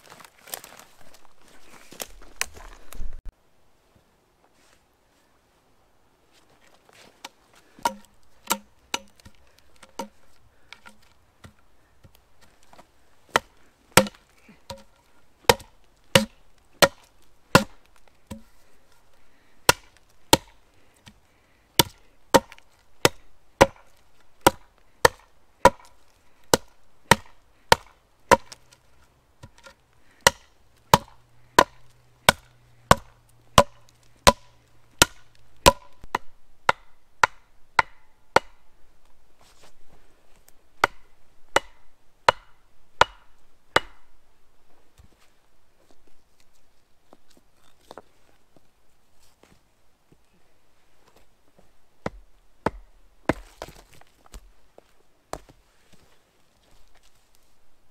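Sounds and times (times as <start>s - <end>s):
hatchet chopping wood: 7.8s - 12.7s, 13.3s - 18.6s, 19.6s - 21.2s, 21.8s - 28.7s, 29.4s - 38.7s, 40.8s - 44.1s, 52.0s - 53.9s.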